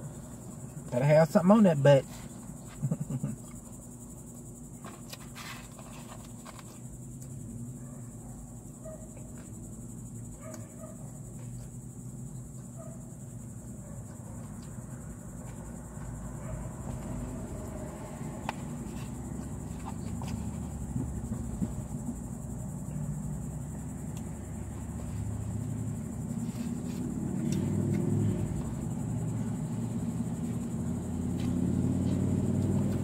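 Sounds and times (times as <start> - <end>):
insects droning: 0.0 - 33.0
car rumble from inside: 16.2 - 33.0.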